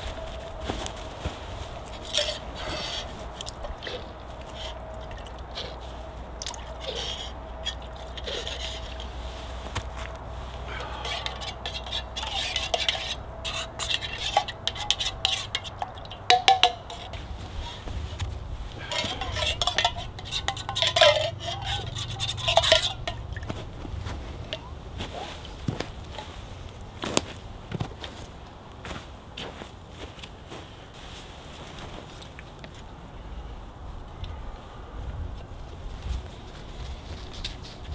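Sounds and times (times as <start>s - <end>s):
metal pot scraping and clinking: 1.8s - 17.9s, 18.7s - 23.5s
metal knocks and clatter: 13.9s - 17.3s, 18.8s - 23.6s.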